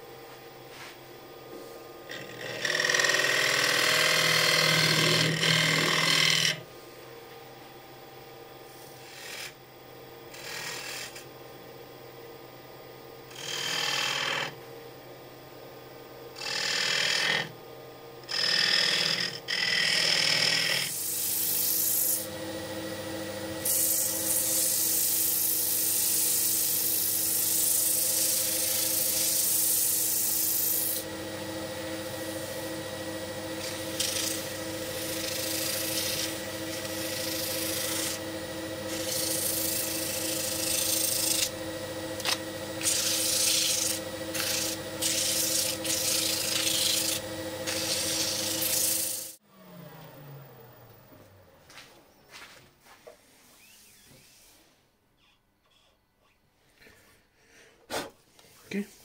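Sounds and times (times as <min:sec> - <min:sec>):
machine humming: 0:01.2 - 0:53.0
lathe tool scraping wood: 0:01.6 - 0:06.7, 0:08.7 - 0:09.6, 0:10.3 - 0:11.2, 0:13.3 - 0:14.6, 0:16.4 - 0:17.6, 0:18.2 - 0:49.4
sandpaper hissing on spinning wood: 0:19.6 - 0:22.3, 0:23.6 - 0:31.1, 0:32.0 - 0:41.5, 0:42.8 - 0:49.4.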